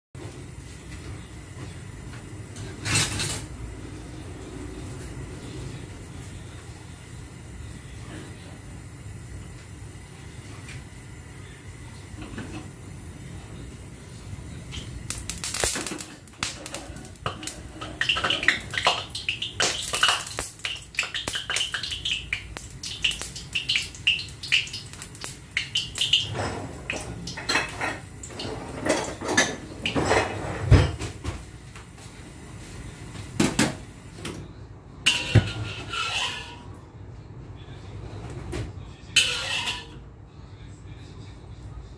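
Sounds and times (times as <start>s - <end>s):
water spitting on hot pan: 14.7s - 30.4s
wok clanking on a grate: 14.8s - 31.0s, 35.0s - 36.6s.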